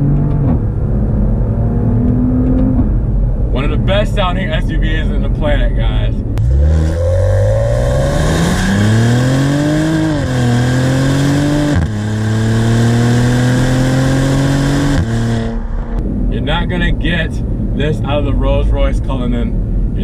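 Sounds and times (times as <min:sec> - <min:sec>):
car engine accelerating hard: 0:06.4 - 0:16.5.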